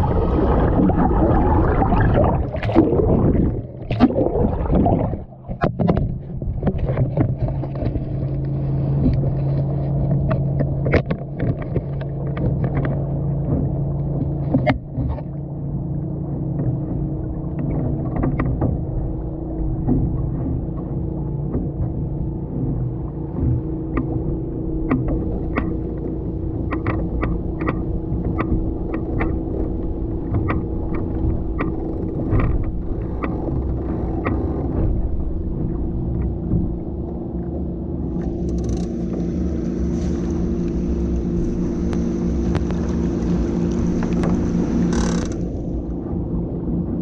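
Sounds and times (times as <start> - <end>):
wind buffeting microphone: 0.0 - 9.4
steady hum: 0.0 - 47.0
sharp ticks and knocks: 10.1 - 15.3, 16.6 - 18.8, 19.8 - 36.7, 40.7 - 45.9.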